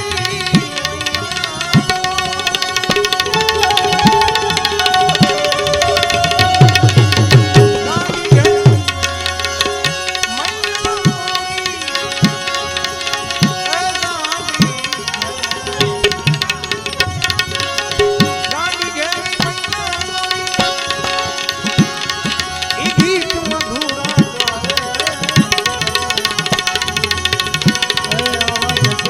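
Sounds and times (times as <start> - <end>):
fast clicking percussion: 0.0 - 29.0
tabla rhythm: 0.0 - 29.0
sustained held notes: 3.3 - 8.8.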